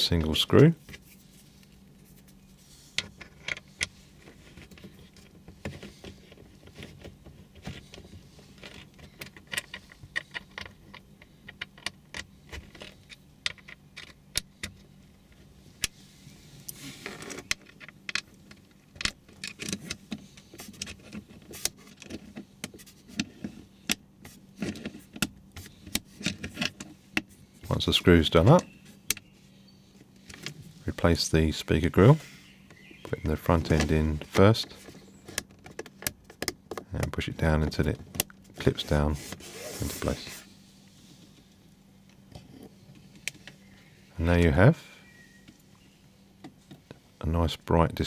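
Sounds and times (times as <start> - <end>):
scraping rustle: 15.9 - 17.5, 38.6 - 41.5.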